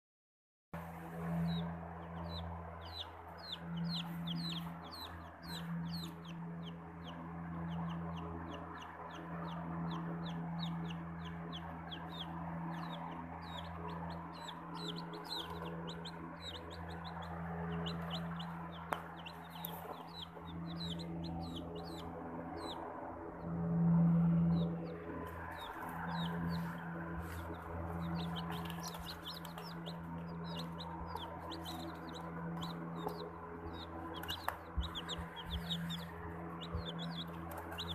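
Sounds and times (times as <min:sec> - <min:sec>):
chicks peeping: 0:00.8 - 0:37.9
steady low hum: 0:00.8 - 0:37.9.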